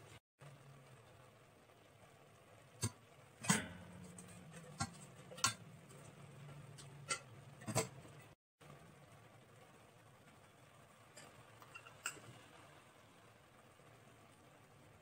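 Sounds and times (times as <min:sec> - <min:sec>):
low steady hum: 0:00.0 - 0:15.0
metal skimmer clinking on pot: 0:02.8 - 0:05.7.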